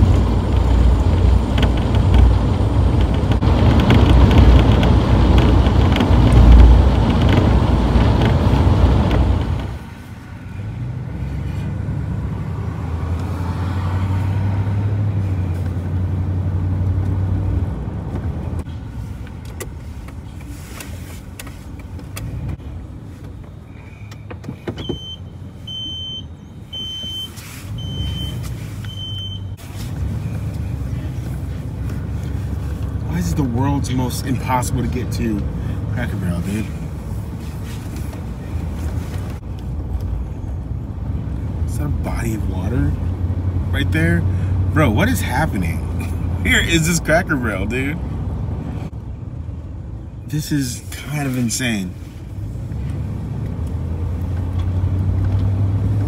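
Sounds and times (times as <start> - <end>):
low engine and tyre hum: 0.0 - 56.0
road and wind noise in van: 0.0 - 56.0
short high beeps: 25.0 - 29.6.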